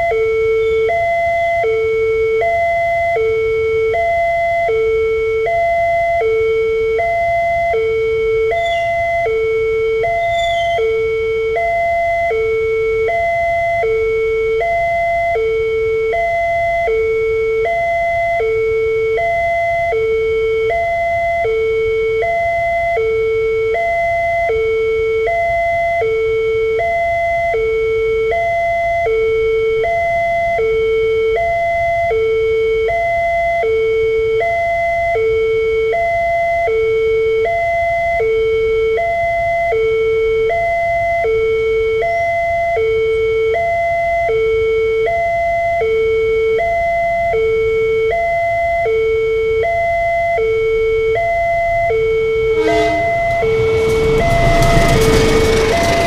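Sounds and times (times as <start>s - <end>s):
level crossing alarm ding-dong: 0.0s - 56.0s
low rumble: 52.3s - 56.0s.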